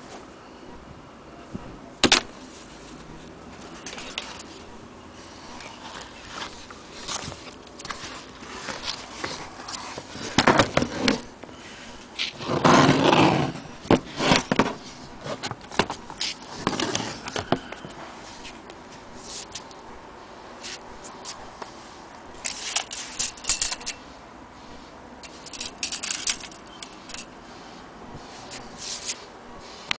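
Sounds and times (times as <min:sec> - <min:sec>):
rustle: 0:01.4 - 0:29.9
handling scrapes and knocks: 0:05.4 - 0:19.7, 0:22.4 - 0:24.0, 0:28.2 - 0:29.9.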